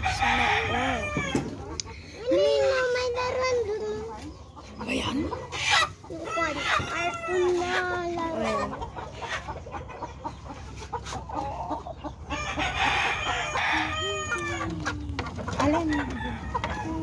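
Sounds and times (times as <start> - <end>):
rooster crowing: 0.0 - 1.4
chickens clucking: 0.0 - 17.0.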